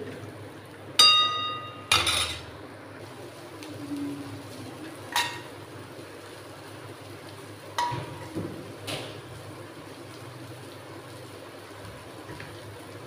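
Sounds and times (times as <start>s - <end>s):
metal ladle clanking on pan: 1.0s - 2.5s, 5.1s - 5.5s, 7.8s - 8.3s.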